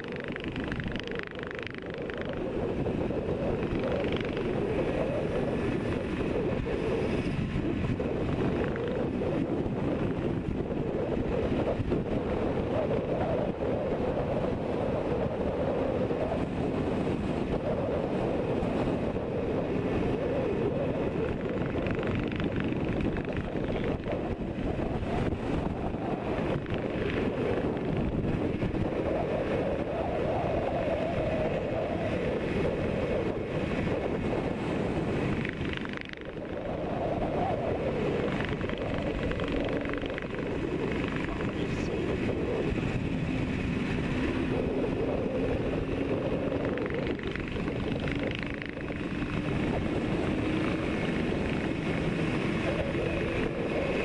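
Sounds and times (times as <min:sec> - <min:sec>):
wind rush: 0:00.0 - 0:54.0
motorcycle engine running: 0:42.6 - 0:54.0.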